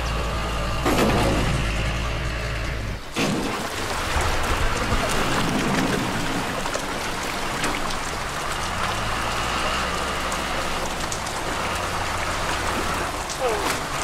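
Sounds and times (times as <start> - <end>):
fish thrashing and splashing: 3.0 - 14.0
net hauled through splashing water: 3.1 - 14.0.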